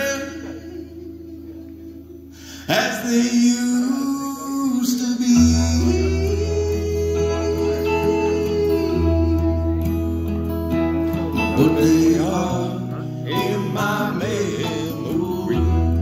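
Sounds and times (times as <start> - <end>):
acoustic guitar strumming: 0.0 - 16.0
electric guitar lead bending notes: 5.3 - 16.0
steady low bass line: 5.4 - 16.0.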